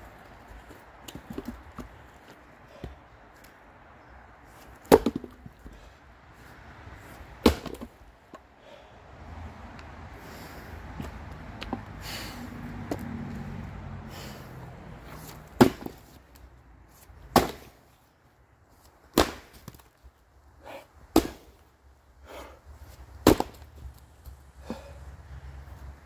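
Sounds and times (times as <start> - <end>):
maul chopping wood: 4.8 - 5.4, 7.4 - 7.9, 15.5 - 16.2, 17.2 - 17.8, 19.1 - 19.9, 21.1 - 21.6, 23.2 - 23.7.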